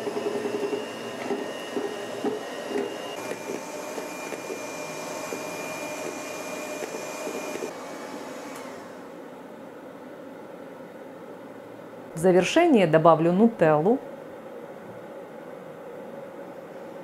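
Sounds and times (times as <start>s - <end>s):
electric hand mixer whining: 0.0s - 9.1s.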